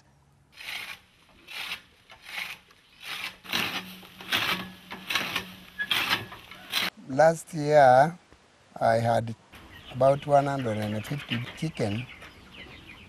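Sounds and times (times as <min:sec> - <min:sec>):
rasping scraping strokes: 0:00.6 - 0:06.9.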